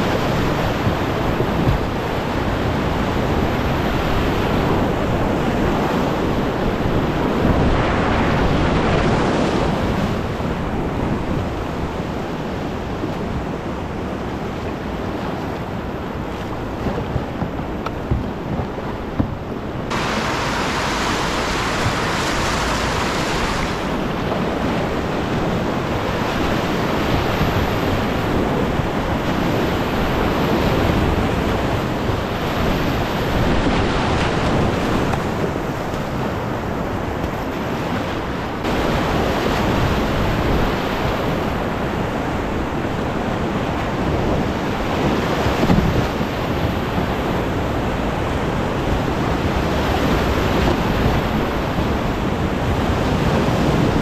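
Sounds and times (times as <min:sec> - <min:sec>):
wind buffeting microphone: 0:00.0 - 0:54.0
river rapids rushing: 0:19.9 - 0:28.2, 0:38.6 - 0:42.6.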